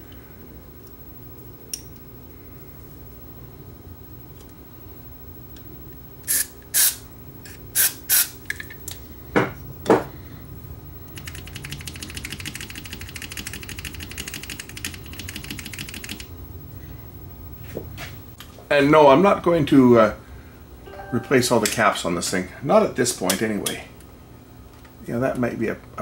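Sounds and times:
aerosol spray bursts: 6.3s - 7.0s, 7.8s - 8.4s.

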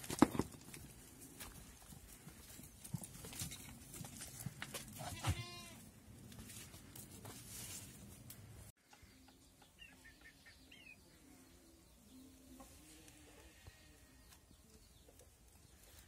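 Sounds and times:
hooves clicking on stone: 0.0s - 5.4s
goat bleating: 5.0s - 5.8s
birds chirping: 8.8s - 12.9s.

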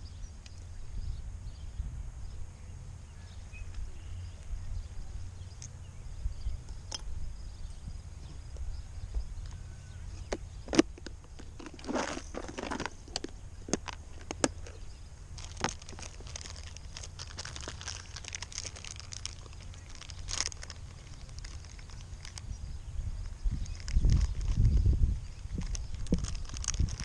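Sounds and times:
plastic bag crinkling: 10.3s - 22.5s, 23.2s - 27.0s.

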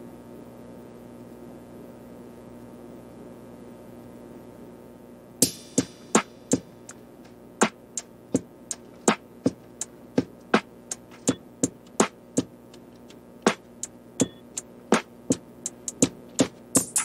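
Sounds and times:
drum-machine beat: 5.4s - 17.0s.

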